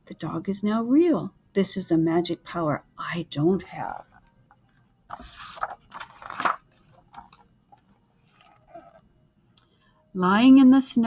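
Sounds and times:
paper pages rustling: 0:03.9 - 0:09.0.

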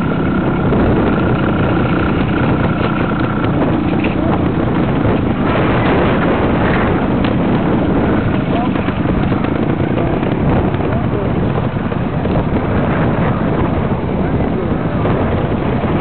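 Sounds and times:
motorcycle engine running: 0:00.0 - 0:16.0
wind buffeting microphone: 0:00.0 - 0:16.0.

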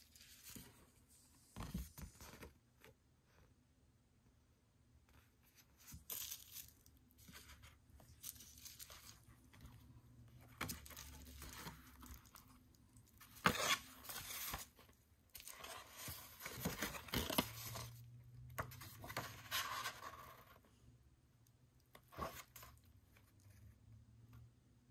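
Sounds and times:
book pages flipping and rustling: 0:00.0 - 0:03.0, 0:05.1 - 0:20.6.

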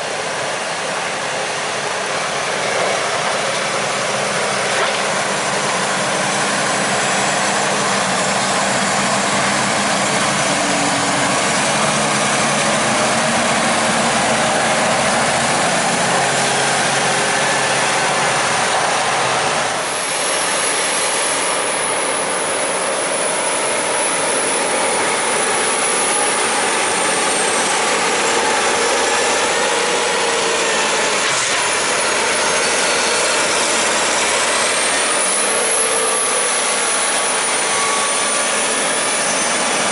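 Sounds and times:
tractor diesel engines running hard: 0:00.0 - 0:39.9
thin high whistle wavering in pitch: 0:19.9 - 0:39.9.

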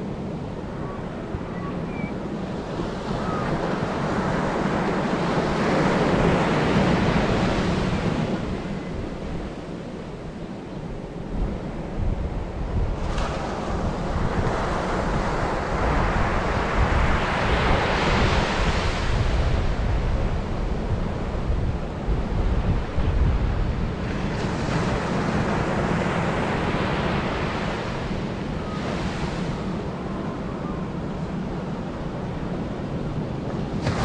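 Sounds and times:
wind buffeting microphone: 0:00.0 - 0:34.0
surf breaking on beach: 0:33.7 - 0:34.0.

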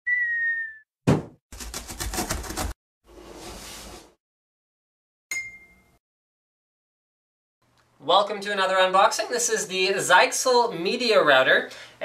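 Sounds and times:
sharp cartoon thump: 0:01.0 - 0:01.4.

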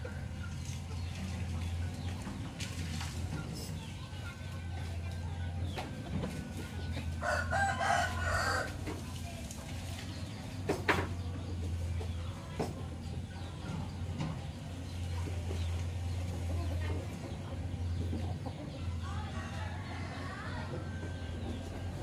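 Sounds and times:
rooster crowing: 0:07.2 - 0:08.8.

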